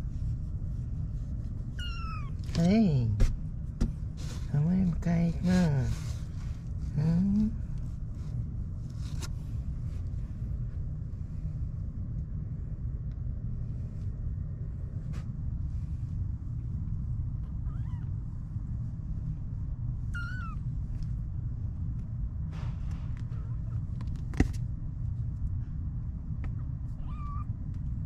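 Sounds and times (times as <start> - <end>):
steady low rumble: 0.0 - 28.0
kitten mewing: 1.8 - 2.5, 17.4 - 18.2, 20.1 - 20.6, 26.9 - 27.5.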